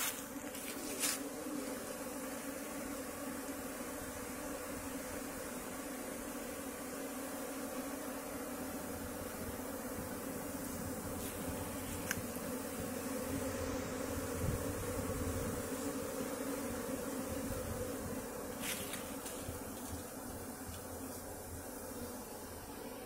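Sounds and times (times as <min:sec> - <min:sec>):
bees buzzing: 0:00.0 - 0:23.0.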